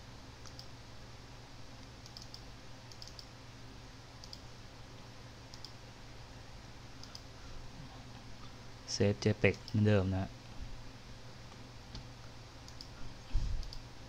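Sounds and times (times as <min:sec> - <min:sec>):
faint low hum: 0:00.0 - 0:14.0
computer mouse clicks: 0:00.4 - 0:00.7, 0:02.0 - 0:03.3, 0:04.2 - 0:04.5, 0:05.5 - 0:05.8, 0:07.0 - 0:07.3, 0:11.9 - 0:13.0, 0:13.6 - 0:13.9.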